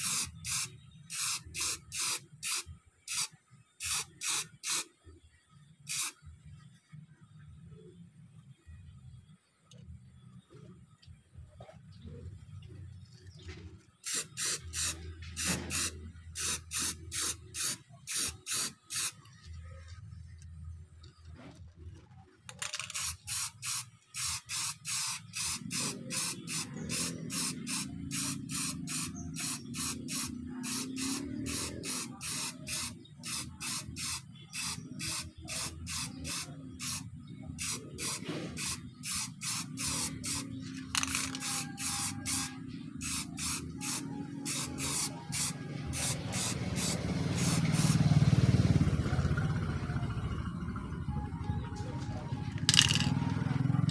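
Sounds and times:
spray paint can bursts: 0.0s - 4.9s, 5.9s - 6.2s, 14.0s - 19.3s, 22.5s - 48.0s, 52.6s - 53.2s.

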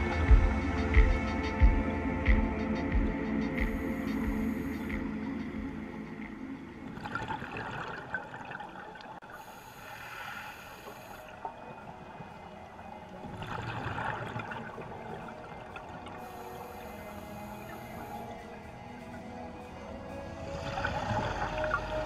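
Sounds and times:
air bubbles gurgling underwater: 6.8s - 9.2s.

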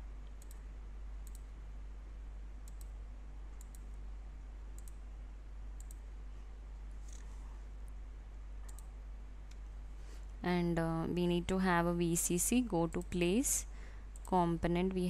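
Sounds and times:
steady low hum: 0.0s - 15.0s
computer mouse clicking: 0.2s - 0.6s, 1.2s - 1.5s, 2.6s - 4.0s, 4.7s - 5.0s, 5.8s - 6.0s, 8.6s - 8.9s.

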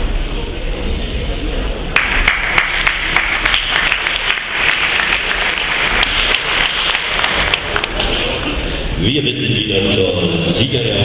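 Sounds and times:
single sharp claps: 2.0s - 8.1s
audience applauding: 2.0s - 8.6s.

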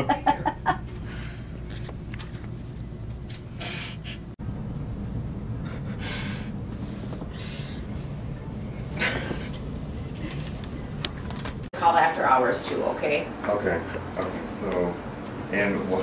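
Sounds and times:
low room hum: 0.0s - 16.0s
person breathing: 1.0s - 1.6s, 5.6s - 8.1s.

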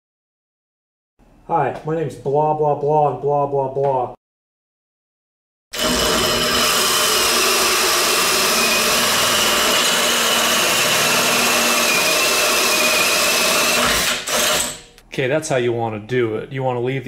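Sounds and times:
machine drone: 5.8s - 14.8s
saw whining in metal: 5.8s - 14.9s.

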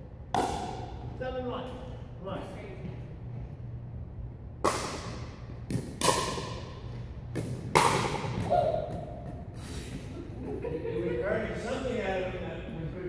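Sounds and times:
paddles striking plastic ball: 7.3s - 9.4s.

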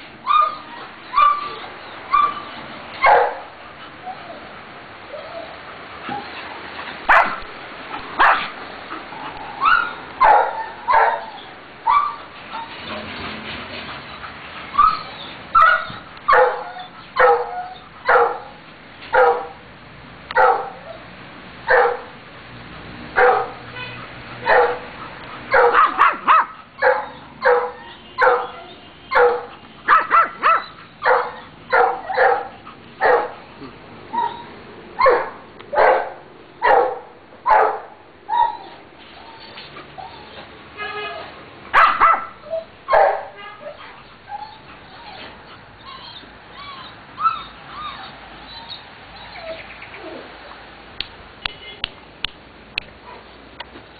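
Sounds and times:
dog barking: 3.0s - 3.5s, 7.1s - 7.4s, 8.2s - 8.5s, 9.8s - 11.3s, 15.6s - 17.5s, 18.1s - 18.5s, 19.2s - 19.6s, 20.4s - 20.8s, 21.7s - 22.1s, 23.2s - 23.6s, 24.4s - 24.9s, 25.5s - 33.4s, 35.0s - 37.9s, 41.8s - 43.8s.

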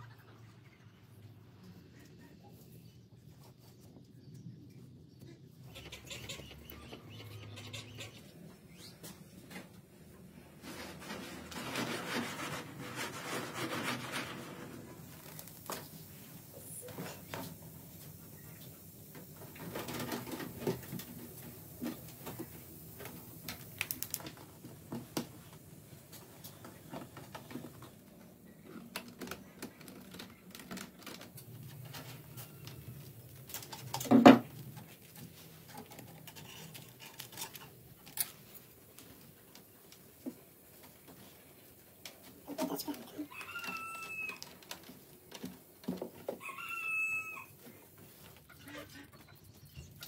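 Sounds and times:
wire mesh clicks and rustles: 22.2s - 24.4s, 28.8s - 40.0s.

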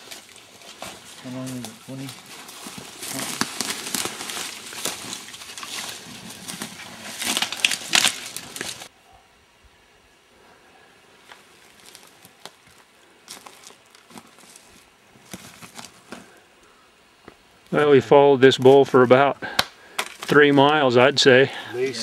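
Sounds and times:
rustling and crinkling handling: 0.0s - 8.9s, 11.2s - 16.4s.

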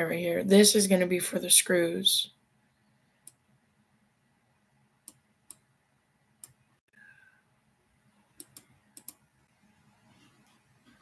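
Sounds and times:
computer mouse clicking: 8.4s - 9.2s.

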